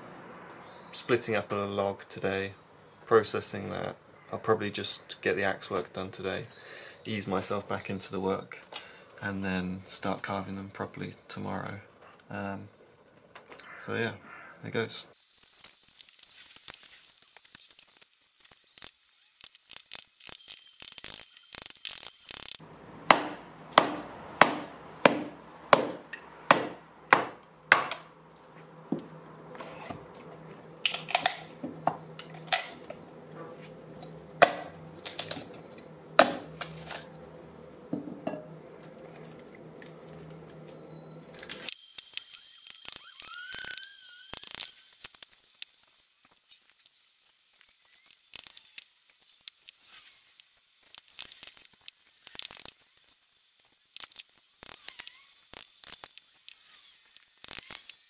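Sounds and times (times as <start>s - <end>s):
mallet knocking axe into wood: 23.1s - 28.0s
taps on split wood: 23.1s - 28.1s, 34.4s - 34.7s.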